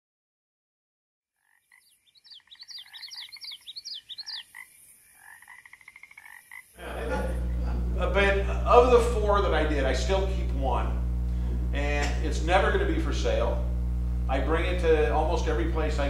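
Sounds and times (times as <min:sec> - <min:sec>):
frogs calling: 0:01.4 - 0:07.8
loud steady low hum: 0:06.8 - 0:16.0.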